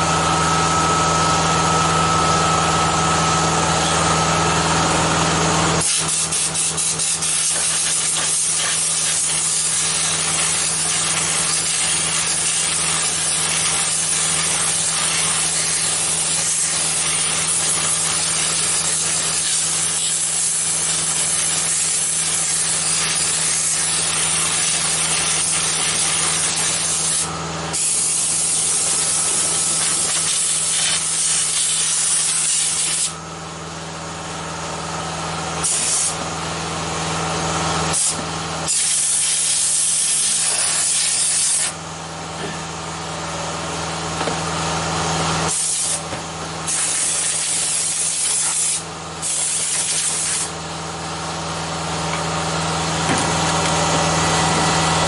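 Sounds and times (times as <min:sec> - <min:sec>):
compressor motor humming: 0:00.0 - 0:55.0
compressed air hissing: 0:05.8 - 0:16.3, 0:45.5 - 0:46.0, 0:46.6 - 0:50.5.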